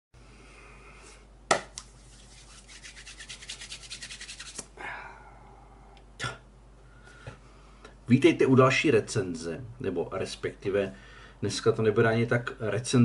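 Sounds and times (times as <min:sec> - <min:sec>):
hand clap: 0:01.5 - 0:01.9
palms rubbing together: 0:01.7 - 0:04.7.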